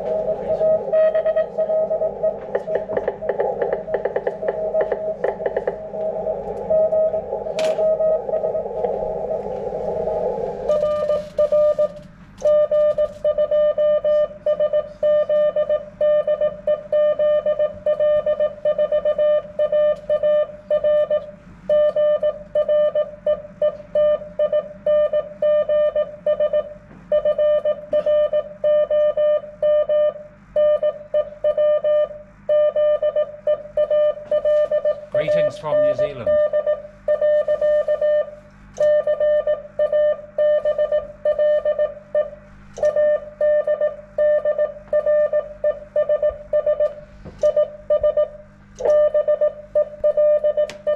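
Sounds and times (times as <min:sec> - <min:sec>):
radio receiver hiss: 0:00.0 - 0:12.0
morse code tone: 0:00.0 - 0:21.1, 0:27.2 - 0:50.9.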